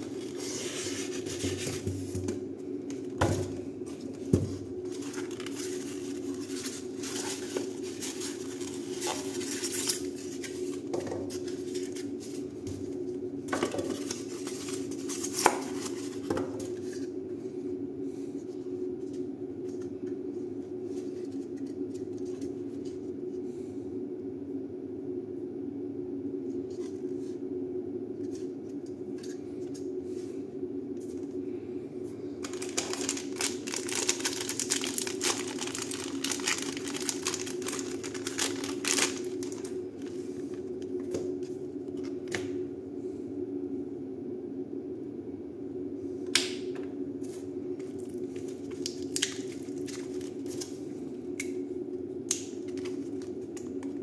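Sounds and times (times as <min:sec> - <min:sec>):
cardboard and foam rustling: 0:00.0 - 0:02.4, 0:03.1 - 0:17.1, 0:32.4 - 0:41.5
steady low hum: 0:00.0 - 0:54.0.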